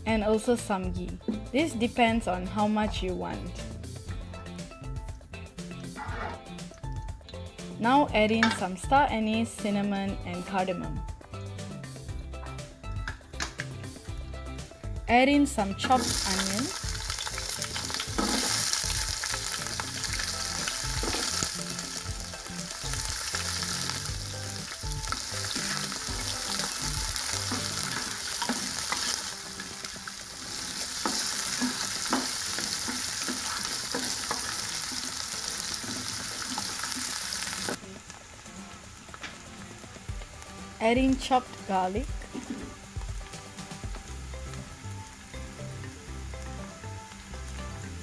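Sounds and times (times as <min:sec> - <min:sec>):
onions sizzling in oil: 0:15.8 - 0:48.0.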